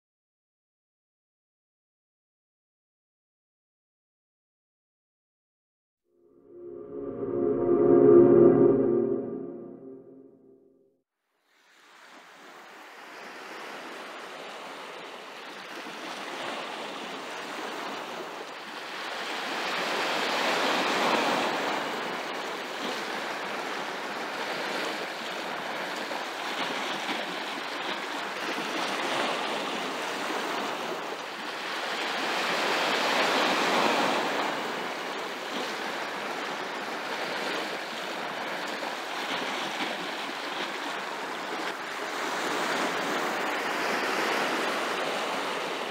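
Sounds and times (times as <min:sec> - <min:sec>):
waves breaking on rocky shore: 0:12.1 - 0:45.9.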